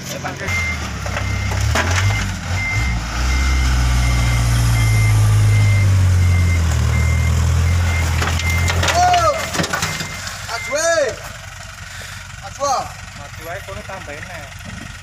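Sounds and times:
diesel truck engine straining: 0.0 - 15.0
reversing alarm beeping: 0.4 - 11.2.

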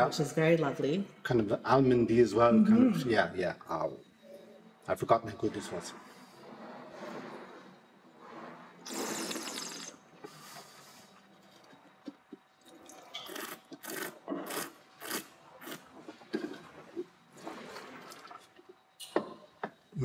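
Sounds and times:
person slurping wine: 8.8 - 10.0, 13.2 - 16.6.

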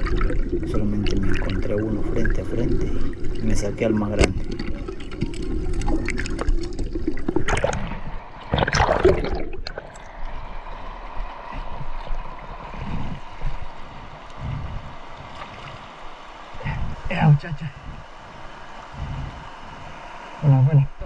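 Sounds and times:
steady underwater hiss: 0.0 - 21.0
underwater rush of water: 0.0 - 21.0
underwater clicks and knocks: 4.0 - 10.0.

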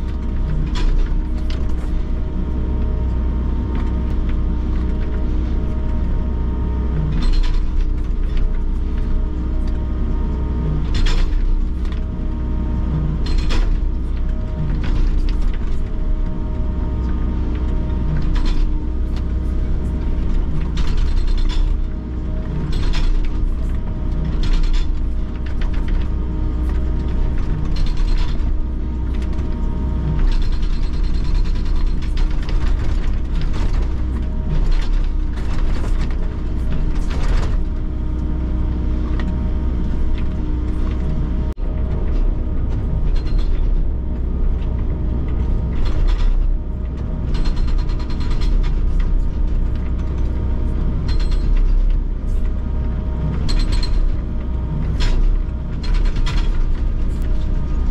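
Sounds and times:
excavator engine drone: 0.0 - 57.9.

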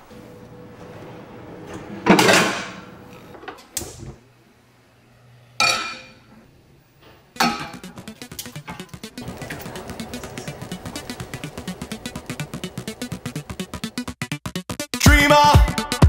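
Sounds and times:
drawer of pans clattering open: 1.6 - 2.9.

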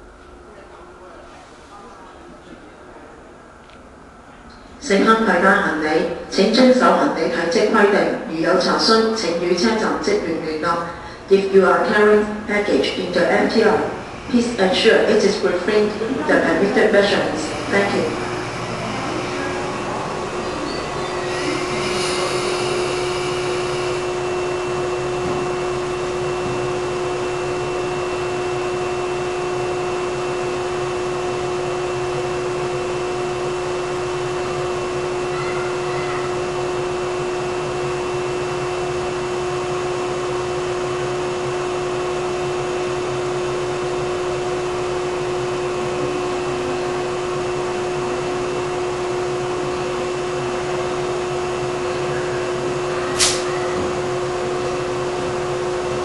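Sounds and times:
train equipment whirring hum: 0.0 - 56.0
brief hiss: 53.2 - 53.5.

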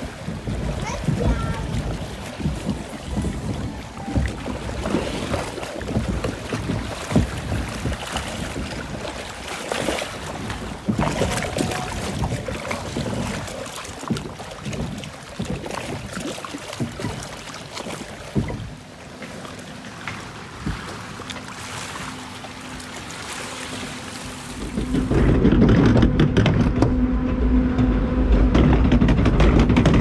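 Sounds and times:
wind buffeting microphone: 0.0 - 17.3, 24.3 - 30.0
rushing splashing water: 0.0 - 26.8
low rumble: 24.4 - 30.0
scattered knocks: 24.6 - 30.0.

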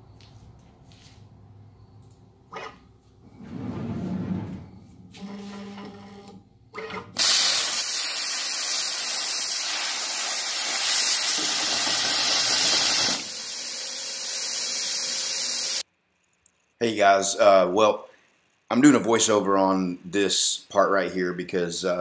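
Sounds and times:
plasma torch hissing: 7.2 - 15.8.

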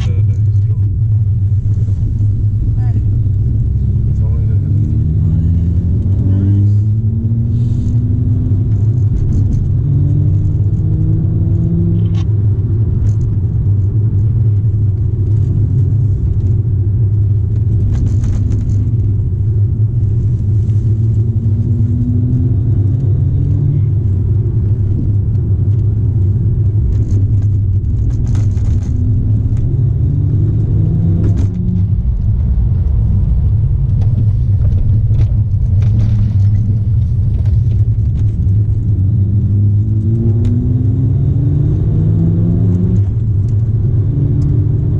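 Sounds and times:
car engine and road noise: 0.0 - 44.9.

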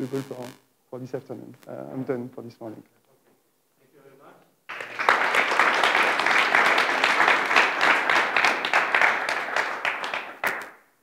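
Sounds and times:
audience applauding: 4.7 - 10.9.

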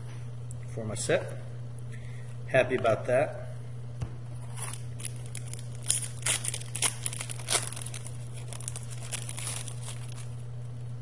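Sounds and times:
steady low hum: 0.0 - 11.0
foil wrapper crinkling and tearing: 4.4 - 10.5.

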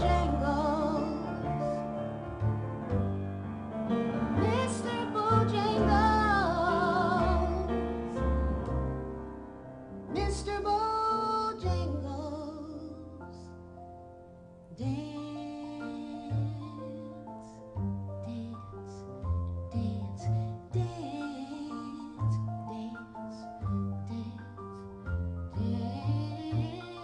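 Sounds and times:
woman singing a ballad: 0.0 - 1.8, 4.4 - 7.9, 10.1 - 13.5, 14.7 - 24.8, 25.5 - 27.0
instrumental accompaniment: 0.0 - 12.0.

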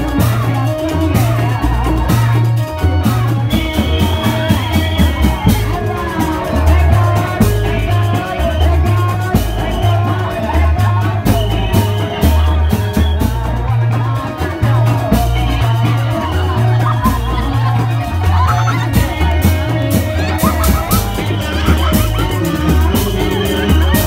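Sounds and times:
drum strokes: 0.0 - 24.0
ensemble music with bass line: 0.0 - 24.0
person singing: 0.0 - 24.0.

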